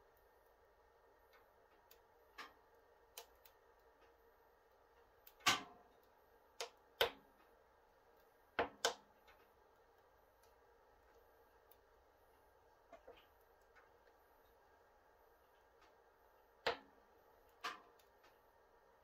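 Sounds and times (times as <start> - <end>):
wood stove pops and ticks: 1.3 - 4.2, 4.8 - 7.6, 8.2 - 9.6, 16.6 - 18.4.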